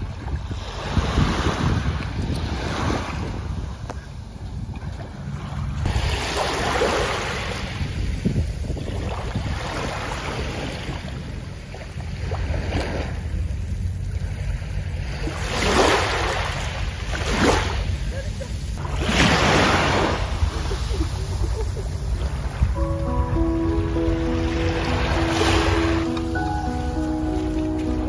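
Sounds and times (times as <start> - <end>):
wind rumbling on microphone: 0.0 - 23.1
sea waves washing onto beach: 5.8 - 13.4, 14.0 - 28.0.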